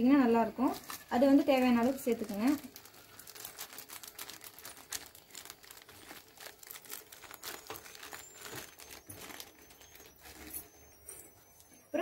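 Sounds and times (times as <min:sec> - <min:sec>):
plastic packet crinkling: 0:00.4 - 0:11.8.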